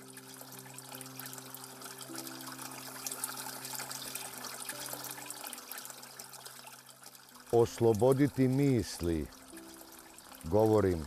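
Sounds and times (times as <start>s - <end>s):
water pouring and splashing: 0.0s - 11.0s
low sustained music notes: 7.3s - 11.0s.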